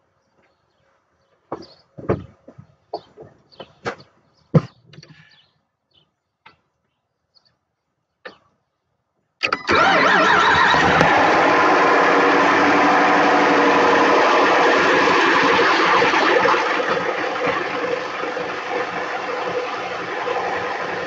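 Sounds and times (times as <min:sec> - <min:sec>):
truck engine running: 0:09.7 - 0:21.0.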